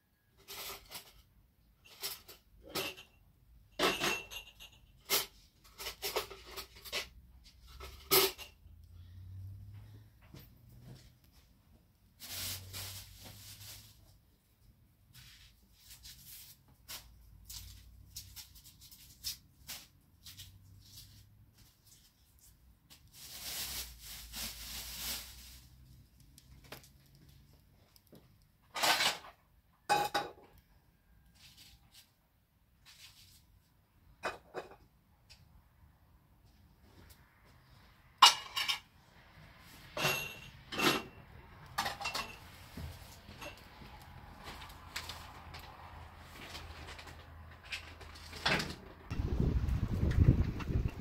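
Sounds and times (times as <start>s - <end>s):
kitchenware clinking: 1.8s - 7.1s, 38.2s - 38.9s, 39.9s - 42.6s, 43.3s - 44.0s
scraping and rustling: 3.8s - 9.8s, 10.5s - 29.4s, 31.2s - 34.8s, 36.4s - 51.0s.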